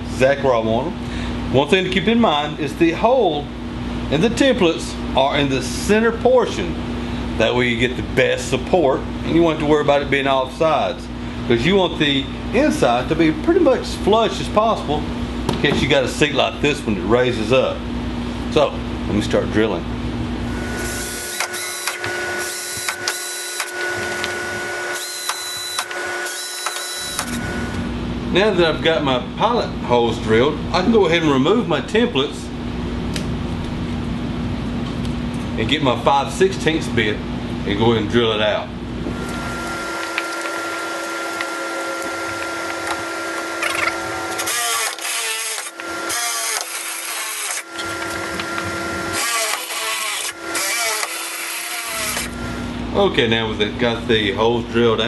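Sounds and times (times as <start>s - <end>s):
drill motor whine: 20.5s - 27.8s, 39.1s - 52.7s.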